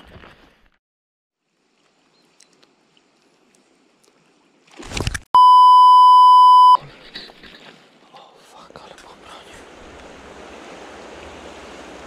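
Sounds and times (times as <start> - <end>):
high-pitched censor bleep: 5.4 - 6.8
water noise: 9.5 - 12.0.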